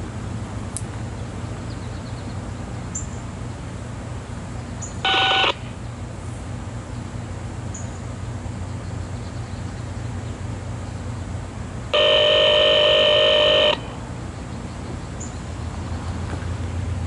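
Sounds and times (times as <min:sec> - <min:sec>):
low steady rumble: 0:00.0 - 0:17.0
electronic multi-pitch tone: 0:05.0 - 0:05.7, 0:12.0 - 0:14.0.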